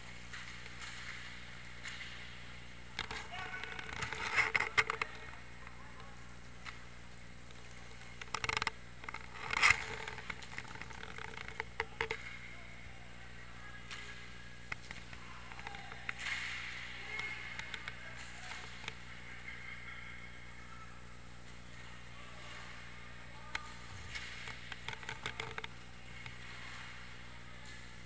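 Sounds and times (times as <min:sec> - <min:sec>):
hum of the hall: 0:00.0 - 0:28.0
hockey sticks and puck knocking: 0:00.2 - 0:02.3, 0:23.5 - 0:27.9.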